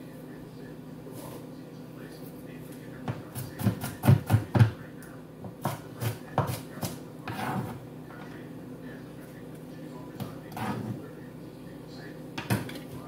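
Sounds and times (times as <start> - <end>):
knife chopping on wooden board: 3.1 - 4.8, 5.6 - 7.7.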